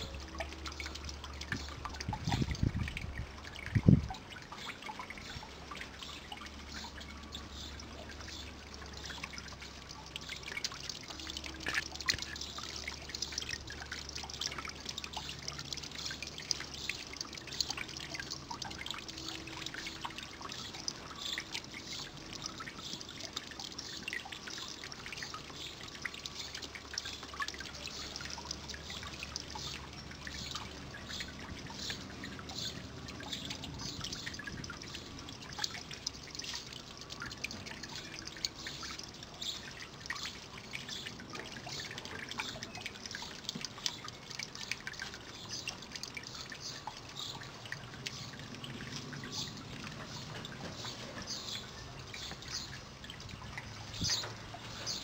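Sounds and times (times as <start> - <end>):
pond fountain trickling: 0.0 - 55.0
water splashes and drips: 0.0 - 55.0.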